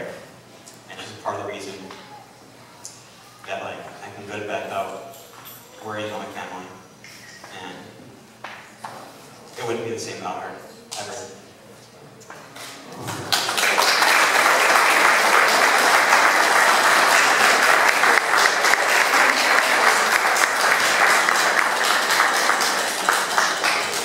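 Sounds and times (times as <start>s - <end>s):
audience applauding: 13.0s - 24.0s.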